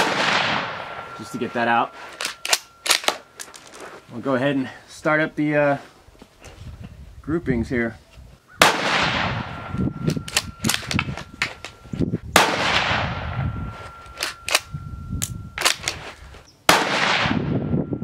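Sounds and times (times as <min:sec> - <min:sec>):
rifle shots with echo: 0:00.0 - 0:03.3, 0:08.6 - 0:11.1, 0:12.3 - 0:14.7, 0:16.7 - 0:17.7
rifle bolt clicks and knocks: 0:02.1 - 0:03.9, 0:10.1 - 0:11.8, 0:14.0 - 0:16.2.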